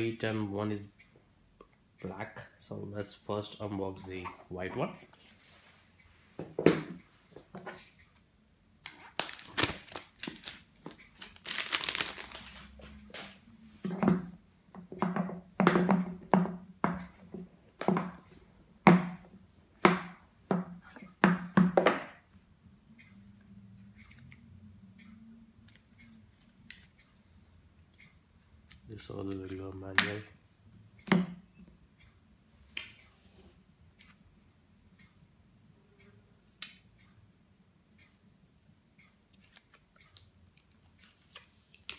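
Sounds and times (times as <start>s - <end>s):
wrap tearing and crinkling: 9.1s - 10.6s, 11.2s - 12.7s.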